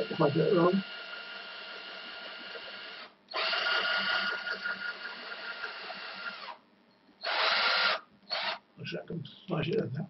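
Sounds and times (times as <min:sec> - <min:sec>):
cordless drill motor whining: 0:00.0 - 0:06.6, 0:07.2 - 0:08.6.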